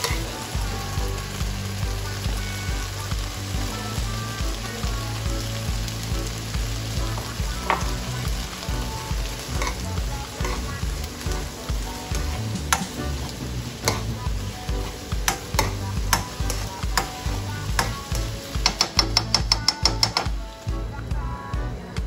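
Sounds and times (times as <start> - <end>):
vegetables sizzling in oil: 0.0 - 21.5
metal spoon scraping a pan: 9.5 - 10.8, 12.1 - 14.2, 15.3 - 20.3.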